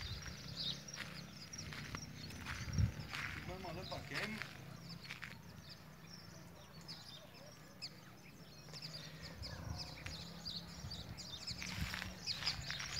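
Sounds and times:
birds chirping: 0:00.0 - 0:12.9.

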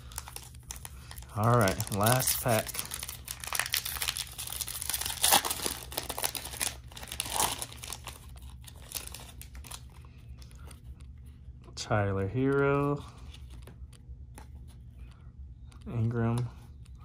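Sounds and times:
foil wrapper tearing and crinkling: 0:00.0 - 0:09.8.

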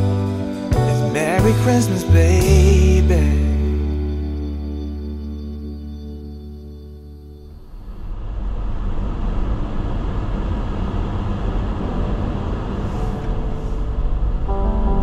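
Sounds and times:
car engine and tyre rumble: 0:07.4 - 0:14.5.

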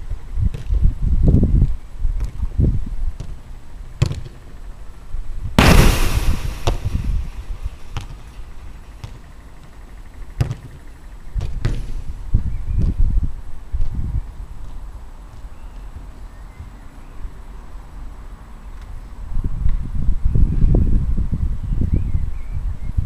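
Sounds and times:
wind rumbling on microphone: 0:00.0 - 0:03.3, 0:05.2 - 0:08.3, 0:11.4 - 0:15.2, 0:19.2 - 0:23.0
football kick thuds: 0:04.0 - 0:04.4, 0:05.6 - 0:08.3, 0:10.4 - 0:10.8, 0:11.4 - 0:11.9
loud rattling crash: 0:05.6 - 0:09.0.

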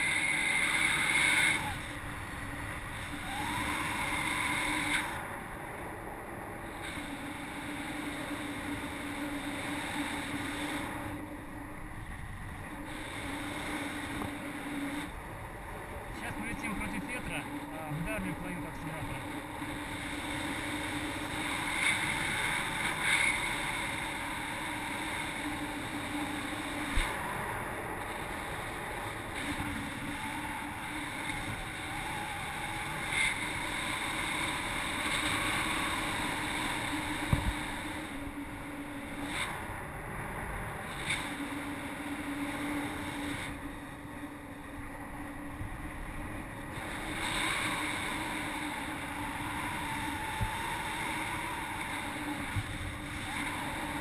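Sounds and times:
wind rushing across microphone: 0:00.0 - 0:41.4.

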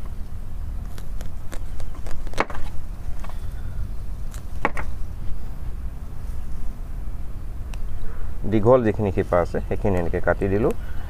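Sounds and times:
steady low rumble: 0:00.0 - 0:11.0
knife cutting roots: 0:00.8 - 0:03.3.

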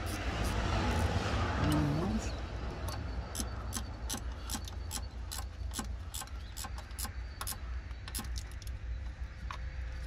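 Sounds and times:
sharp clicks: 0:02.8 - 0:09.7.

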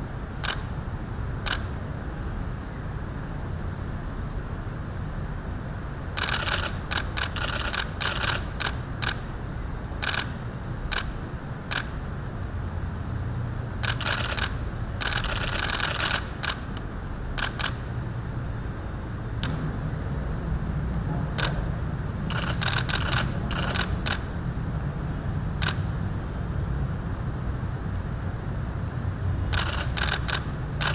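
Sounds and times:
steady low hum: 0:00.0 - 0:30.9
camera shutters clicking: 0:00.4 - 0:00.7, 0:01.5 - 0:01.7, 0:06.2 - 0:09.2, 0:10.0 - 0:10.3, 0:10.9 - 0:11.9, 0:13.8 - 0:16.8, 0:17.4 - 0:17.8, 0:21.4 - 0:21.6, 0:22.3 - 0:24.3, 0:29.5 - 0:30.9.

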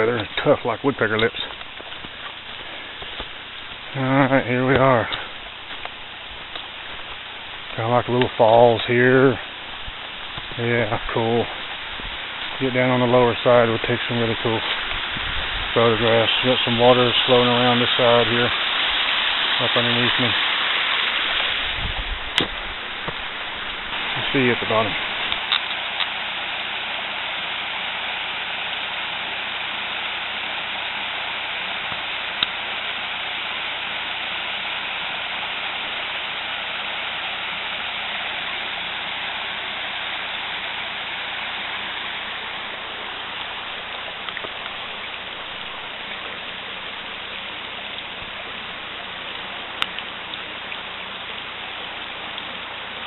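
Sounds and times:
creek water rushing over rocks: 0:00.0 - 0:53.0.

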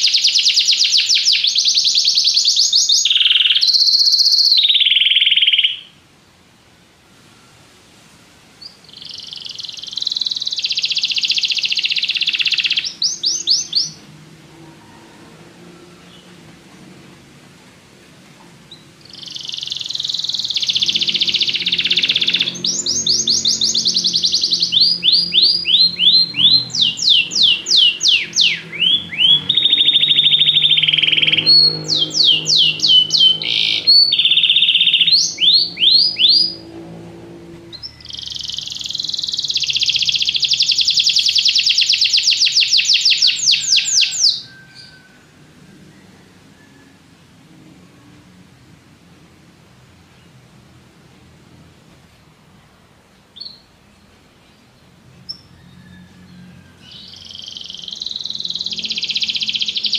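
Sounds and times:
canary singing trills: 0:00.0 - 0:06.0, 0:08.6 - 0:15.2, 0:18.6 - 0:47.1, 0:53.2 - 0:59.9.

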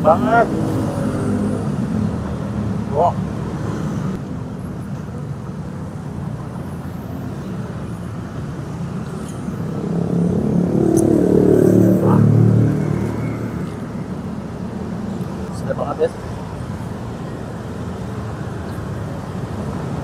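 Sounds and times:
road traffic rumble: 0:00.0 - 0:20.0
vehicle passing: 0:09.1 - 0:16.3.

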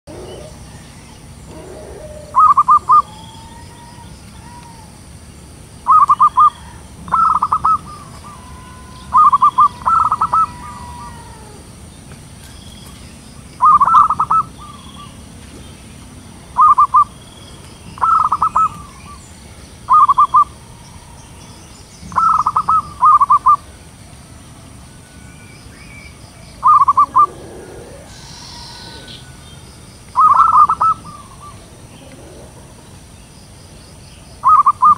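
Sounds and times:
dove cooing: 0:00.1 - 0:05.0, 0:05.9 - 0:11.8, 0:13.6 - 0:15.3, 0:16.6 - 0:17.2, 0:18.0 - 0:21.4, 0:22.1 - 0:23.8, 0:26.4 - 0:33.1, 0:34.4 - 0:34.9.

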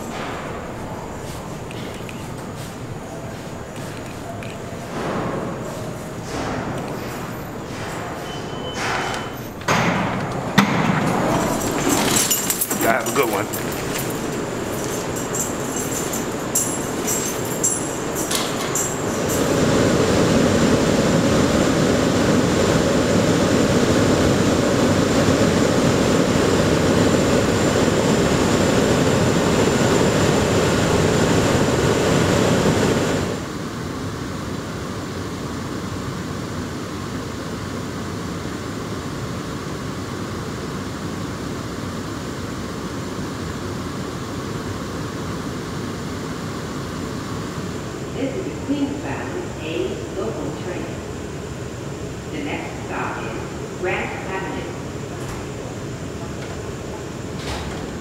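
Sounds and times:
thin high whine: 0:00.0 - 0:09.7, 0:10.8 - 0:33.4
steady hum: 0:00.0 - 0:58.0
subway car wheels rumbling: 0:00.0 - 0:58.0.

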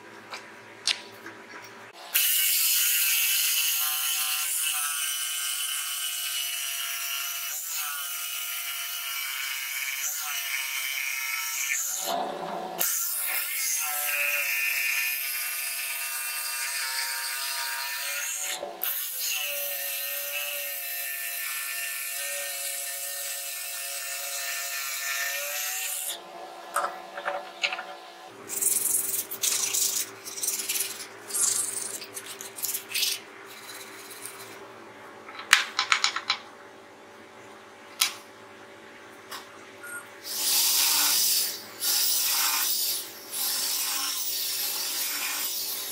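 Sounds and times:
blade rasping through wood: 0:28.5 - 0:34.5.

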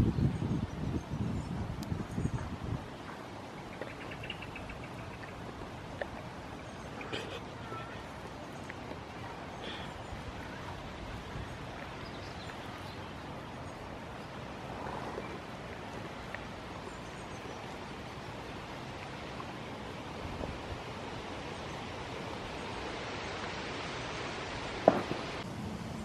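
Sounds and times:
wind hiss on microphone: 0:00.0 - 0:26.0
soft ticks and rustles: 0:01.8 - 0:20.6.

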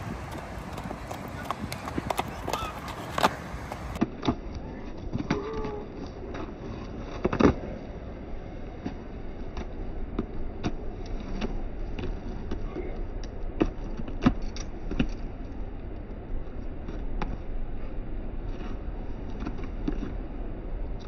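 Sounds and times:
hooves thudding on sandy ground: 0:00.0 - 0:04.0
steady low rumble: 0:00.0 - 0:21.0.

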